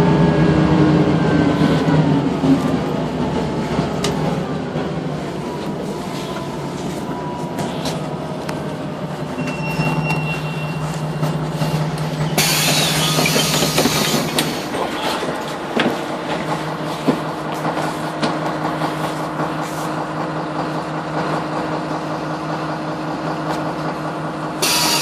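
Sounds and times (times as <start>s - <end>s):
bus engine droning: 0.0s - 25.0s
thin high squeal: 9.4s - 11.3s.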